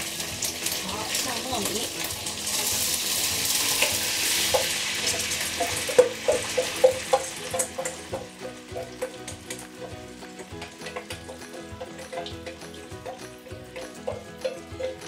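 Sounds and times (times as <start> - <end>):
rice sizzling in hot oil: 0.0 - 15.0
spatula tapping steel bowl: 3.8 - 15.0.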